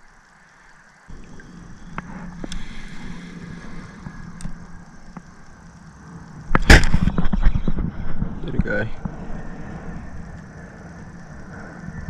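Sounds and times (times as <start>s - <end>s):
light clicks of fishing reel: 0.0s - 7.7s, 10.2s - 11.3s
faint steady hum: 0.0s - 12.0s
fishing reel rumble: 0.0s - 12.0s.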